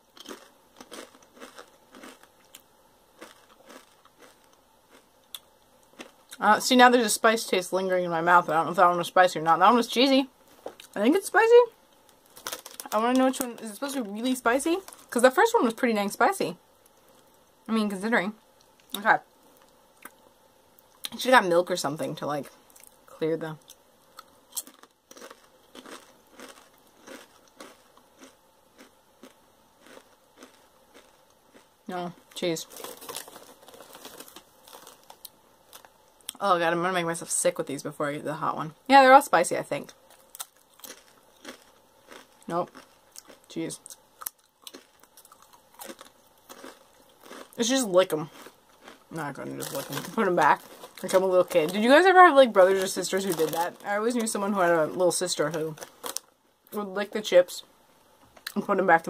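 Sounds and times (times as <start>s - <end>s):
chip crunching while chewed: 0.1s - 6.4s, 12.0s - 14.0s, 23.6s - 36.4s, 39.9s - 56.3s.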